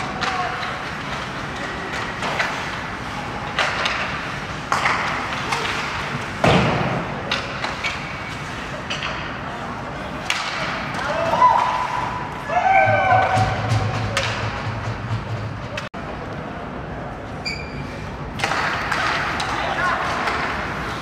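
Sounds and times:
hockey sticks and puck knocking: 0:00.0 - 0:09.4, 0:10.2 - 0:11.8, 0:18.4 - 0:21.0
murmur of spectators talking: 0:00.0 - 0:12.5, 0:13.4 - 0:21.0.

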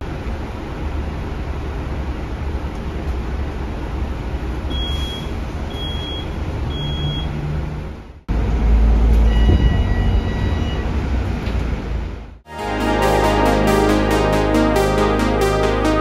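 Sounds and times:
bus engine and road rumble: 0:00.0 - 0:04.7, 0:06.3 - 0:12.4.

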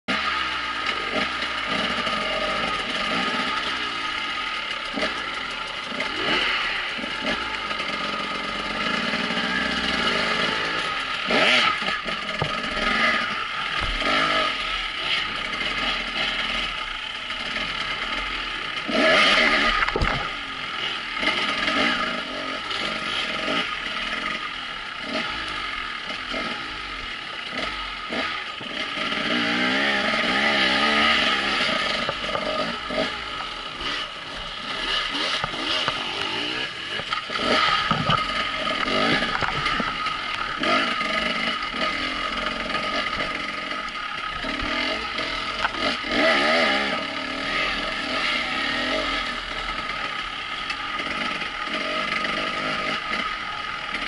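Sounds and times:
dirt bike engines revving: 0:00.1 - 0:54.0
bike clattering over rough ground: 0:36.9 - 0:40.8.

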